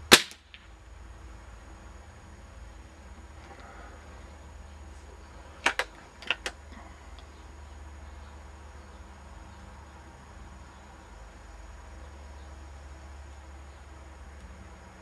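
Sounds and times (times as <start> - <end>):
low steady background noise: 0.0 - 15.0
air rifle clicks: 5.6 - 6.6.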